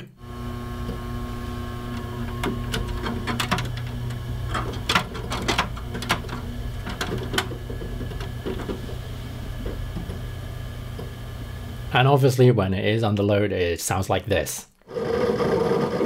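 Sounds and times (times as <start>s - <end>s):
fan and hard drive hum: 0.0s - 12.4s.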